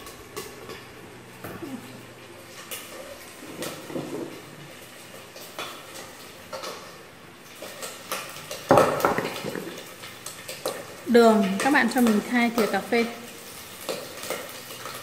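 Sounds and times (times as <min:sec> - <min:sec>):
kitchen containers clicking and knocking: 0:07.6 - 0:09.8.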